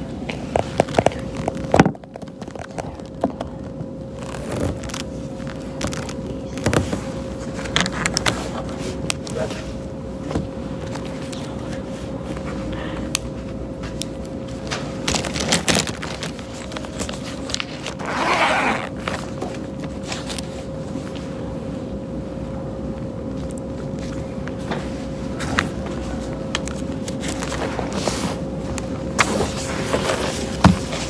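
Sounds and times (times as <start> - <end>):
steady hum: 0.0 - 31.0
pencil case zipper: 17.9 - 19.1.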